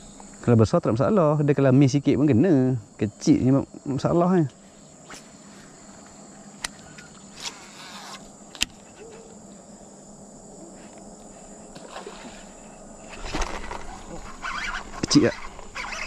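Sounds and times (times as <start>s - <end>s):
crickets chirring: 0.0s - 16.0s
rustle: 4.5s - 9.7s, 10.5s - 16.0s.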